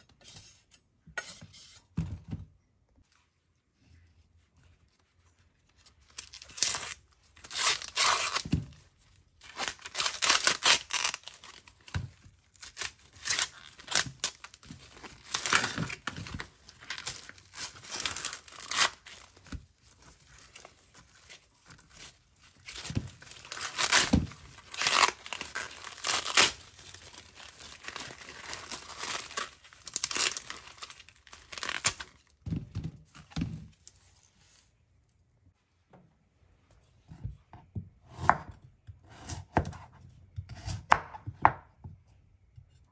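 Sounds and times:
corn husks being torn: 0:09.5 - 0:14.6, 0:21.6 - 0:32.3.

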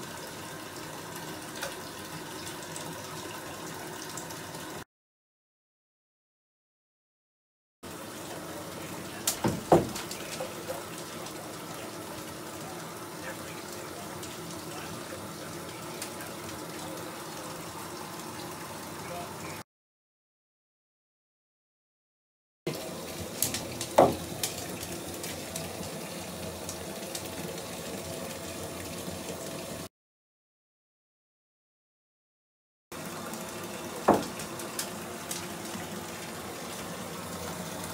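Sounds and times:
bath bomb fizzing: 0:08.0 - 0:19.1, 0:22.7 - 0:29.3, 0:33.0 - 0:37.9.

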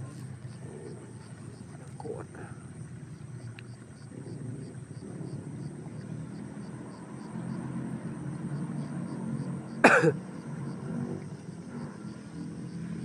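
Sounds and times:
steady low rumble: 0:00.0 - 0:13.0
person coughing: 0:09.8 - 0:10.2.

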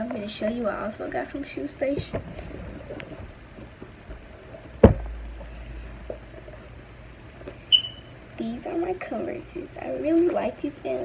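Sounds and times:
sharp thump: 0:04.8 - 0:05.4
sneakers handling noise: 0:07.5 - 0:08.1.

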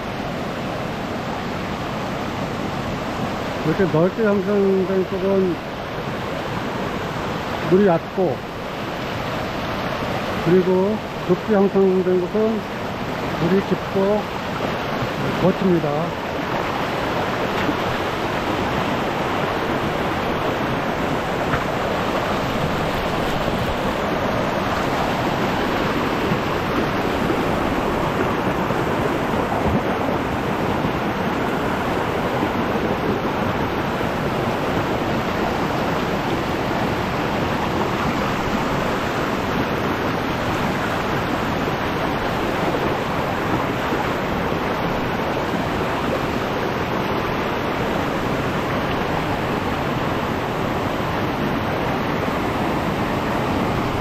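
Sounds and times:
stream rushing over rocks: 0:00.0 - 0:54.0.

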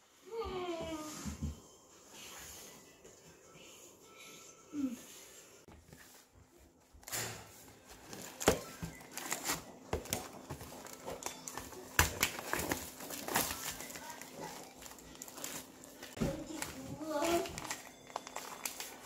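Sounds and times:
plastic packaging crinkling: 0:07.1 - 0:19.0.

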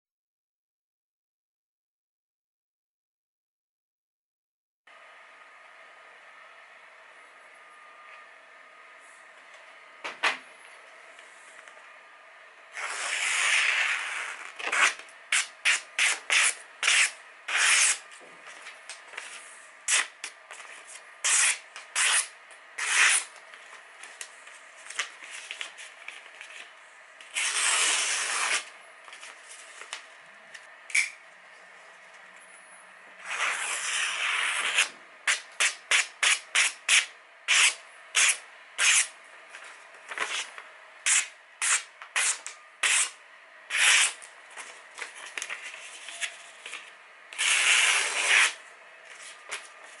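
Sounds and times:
knife slicing paper: 0:12.8 - 0:18.0, 0:21.2 - 0:23.3, 0:33.2 - 0:39.1, 0:41.1 - 0:44.2, 0:45.3 - 0:49.6.

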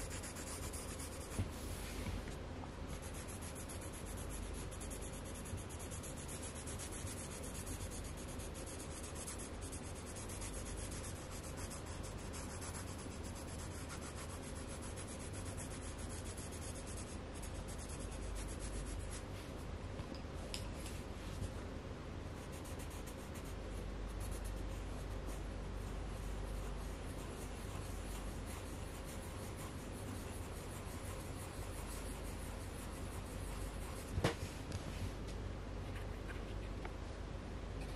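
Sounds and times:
pencil scratching on paper: 0:00.0 - 0:01.6, 0:02.9 - 0:19.3, 0:22.4 - 0:34.2
low background hum: 0:00.0 - 0:37.9.

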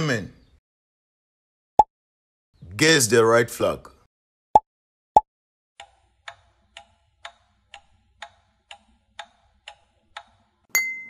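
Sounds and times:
clock ticking: 0:05.8 - 0:10.7.

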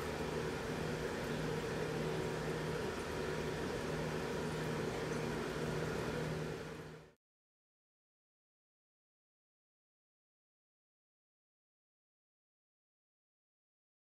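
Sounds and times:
machine hum with hiss: 0:00.0 - 0:07.2.

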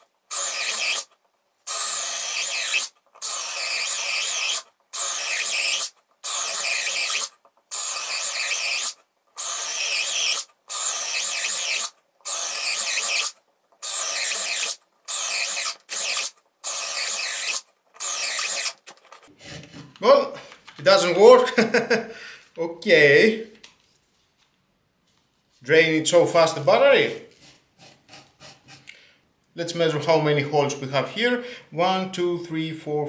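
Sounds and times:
cordless drill boring into wood: 0:00.0 - 0:01.1, 0:01.7 - 0:18.8.

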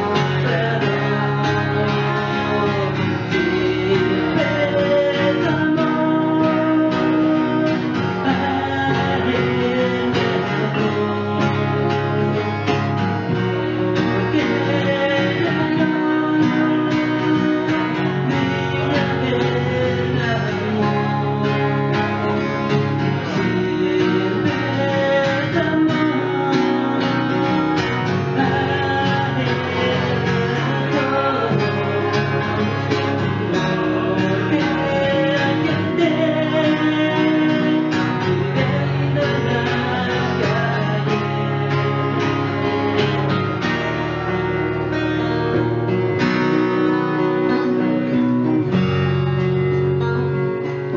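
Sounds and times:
man singing into microphone: 0:00.0 - 0:12.7, 0:13.3 - 0:45.6
acoustic guitars strummed: 0:00.0 - 0:50.9.

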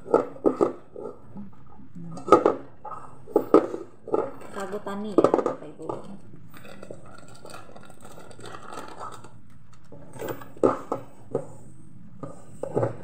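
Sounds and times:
hand mixing minced meat: 0:06.0 - 0:09.7
plastic bag crinkling: 0:06.0 - 0:10.5.

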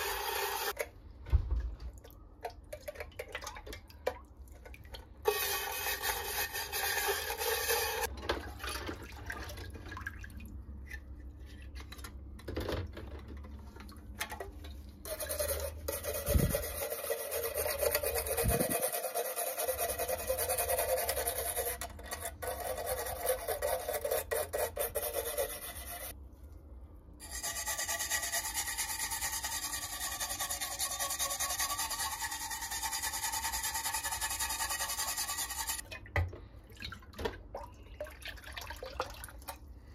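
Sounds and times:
stiff brush scrubbing metal: 0:05.3 - 0:08.1, 0:15.0 - 0:26.1, 0:27.2 - 0:35.8.

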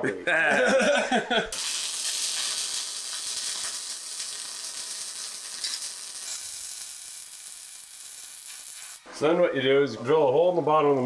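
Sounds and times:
welder arc sizzling and crackling: 0:01.5 - 0:09.1.

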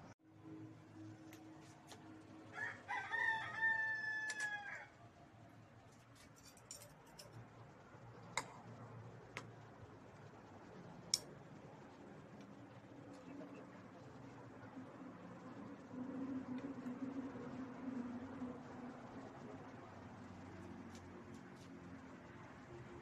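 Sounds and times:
rooster crowing: 0:02.4 - 0:05.1.

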